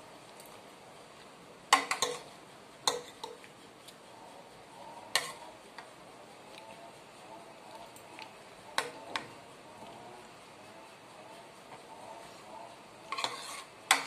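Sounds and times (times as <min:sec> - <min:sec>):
cutlery clinking against dishes: 0:01.7 - 0:02.3, 0:02.9 - 0:03.4, 0:13.1 - 0:14.0.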